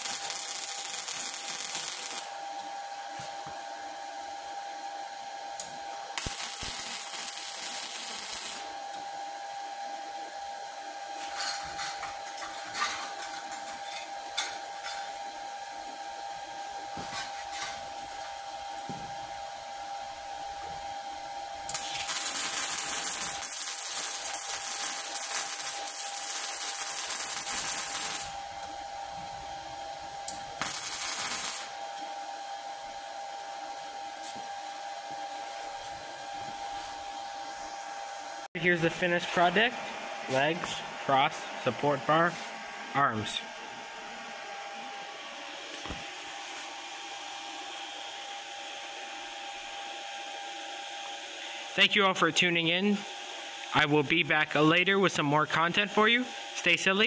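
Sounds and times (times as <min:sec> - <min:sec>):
welding arc crackling and hissing: 0:00.0 - 0:03.4, 0:05.6 - 0:09.0, 0:21.5 - 0:32.1
steady hum: 0:00.0 - 0:57.0.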